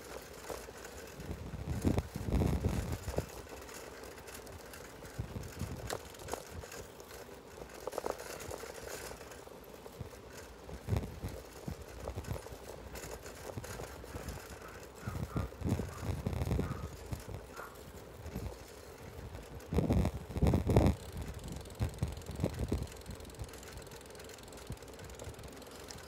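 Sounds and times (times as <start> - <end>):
wind rumbling on microphone: 1.0 - 3.6, 4.2 - 6.9, 10.7 - 23.8.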